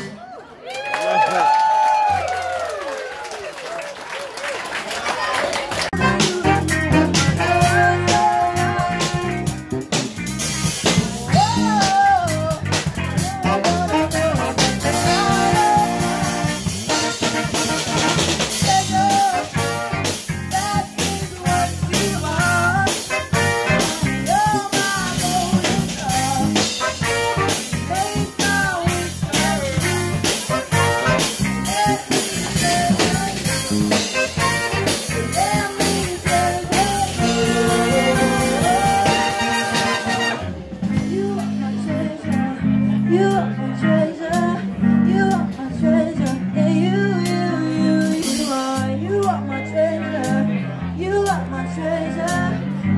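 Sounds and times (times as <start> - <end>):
saxophone section: 5.8 - 41.1
steady drum beat: 5.9 - 41.6
woman singing: 31.6 - 40.4, 41.0 - 52.6.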